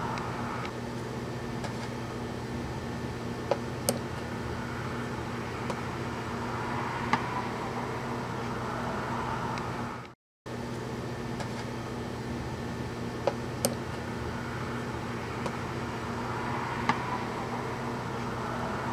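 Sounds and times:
fan humming: 0.0 - 18.9.

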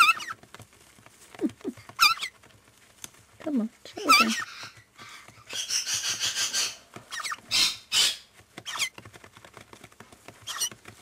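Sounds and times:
nestlings calling: 0.0 - 0.4, 1.4 - 2.4, 3.9 - 8.9, 10.4 - 10.8.

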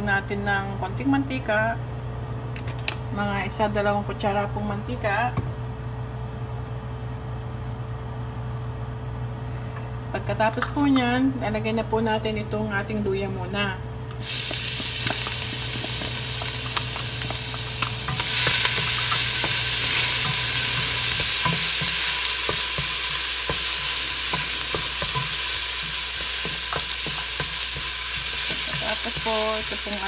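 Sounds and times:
ginger sizzling in hot oil: 14.2 - 30.0.

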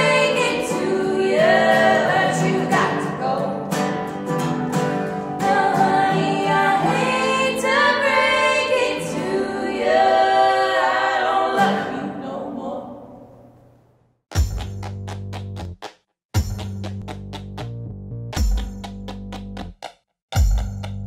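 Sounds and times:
women singing in harmony: 0.0 - 3.8, 5.4 - 13.2
strummed acoustic guitar: 0.0 - 7.0.

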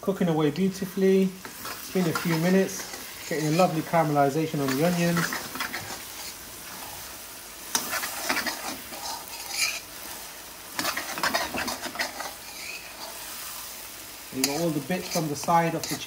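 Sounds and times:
onions sizzling in oil: 0.0 - 16.0
metal spoon scraping pan: 1.4 - 6.4, 7.7 - 9.9, 10.8 - 13.2, 14.4 - 16.0.

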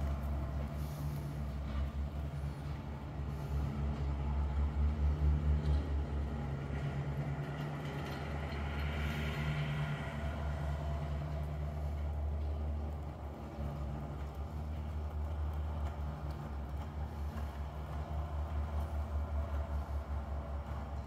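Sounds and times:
low mechanical hum: 0.0 - 21.0.

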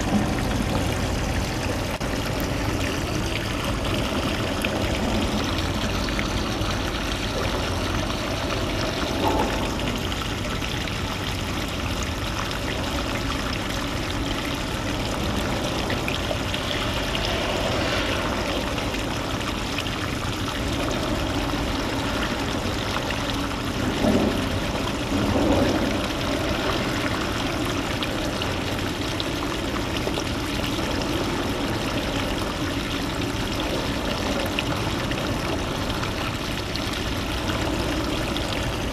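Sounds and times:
shallow seawater rushing: 15.1 - 29.8.

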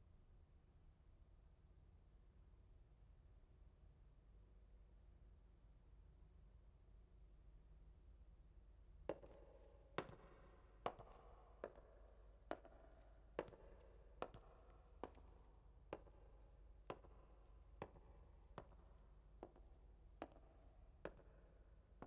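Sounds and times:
echoing footsteps on hard floor: 9.1 - 22.0.

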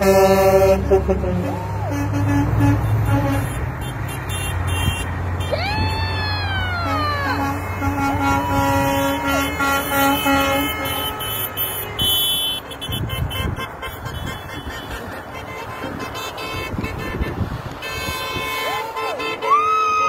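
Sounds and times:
short honks: 0.0 - 5.6, 6.8 - 19.5
steady horn blast: 0.0 - 5.6, 6.7 - 19.5
traffic rumble: 0.0 - 20.0.

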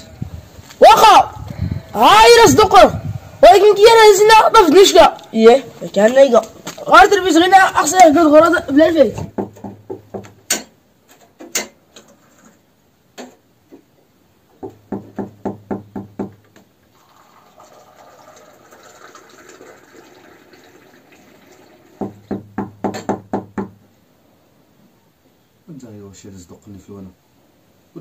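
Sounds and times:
tea pouring into a glass: 16.9 - 22.1.

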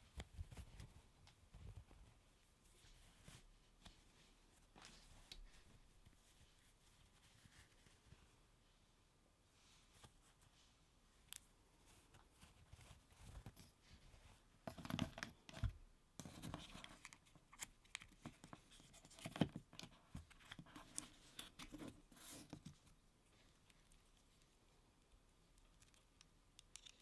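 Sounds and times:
cloth glove rustling: 0.2 - 8.5.

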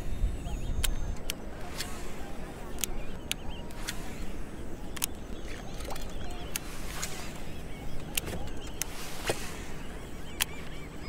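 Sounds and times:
wind rumbling on microphone: 0.0 - 10.6
sharp clicks: 4.9 - 7.4, 8.0 - 9.5, 10.3 - 10.8.

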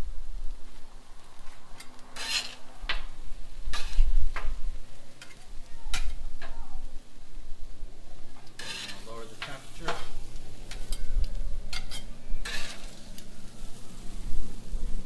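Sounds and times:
food sizzling: 0.6 - 15.0
metal spatulas scraping a griddle: 1.8 - 4.5, 8.4 - 14.1.

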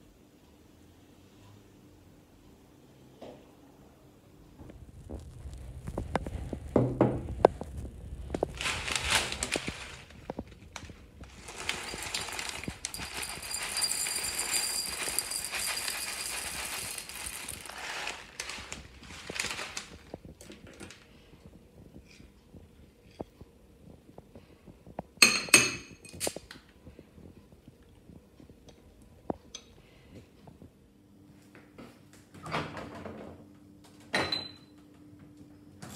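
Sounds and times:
cereal pouring into a bowl: 8.3 - 20.2.

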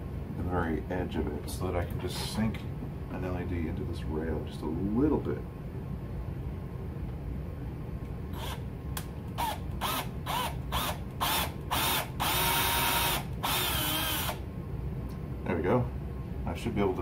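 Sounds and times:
power drill whine: 8.3 - 8.6, 9.4 - 14.4.

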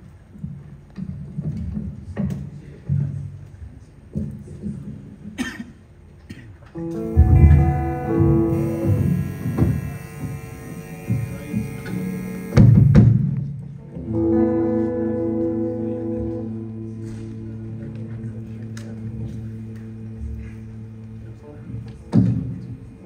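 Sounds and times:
soft instrumental chords: 6.8 - 12.8
low thumps: 7.1 - 11.8.

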